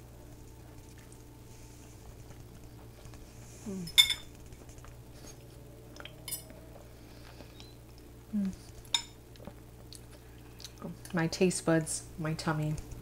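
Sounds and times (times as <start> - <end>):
faint steady hum: 0.0 - 13.0
person murmuring mm: 3.6 - 4.0, 8.3 - 8.6.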